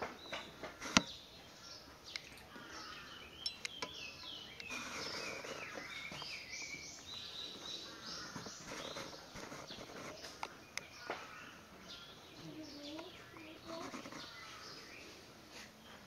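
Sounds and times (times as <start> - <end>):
bird chirping: 0.0 - 16.0
steady background hiss: 0.0 - 16.0
faint clicks: 3.4 - 11.2.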